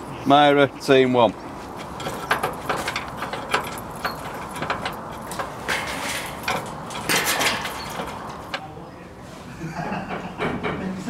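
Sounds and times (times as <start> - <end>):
locking bars clanking: 1.7 - 8.8
keys and padlock rattling: 1.8 - 8.6.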